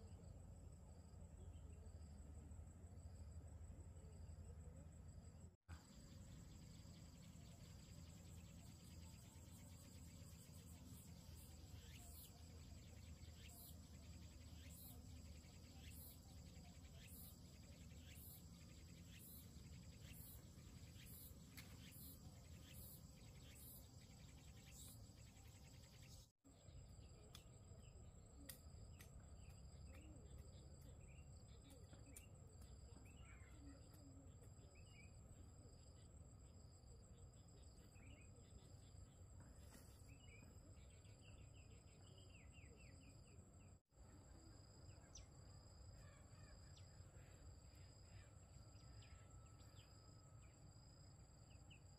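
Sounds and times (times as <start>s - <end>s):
insects chirring: 5.8s - 26.2s.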